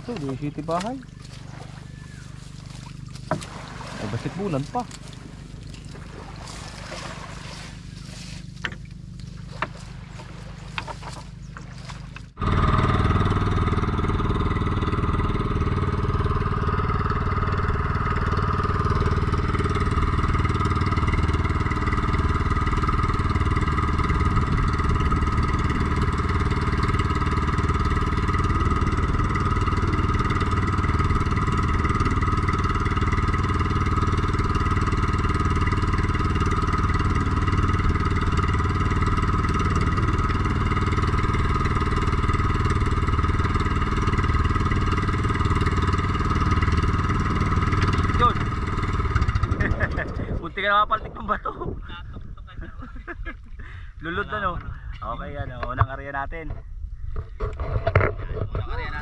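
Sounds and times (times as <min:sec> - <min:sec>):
boat engine running: 0:00.0 - 0:59.0
fishing net clicking and rattling: 0:08.6 - 0:12.3.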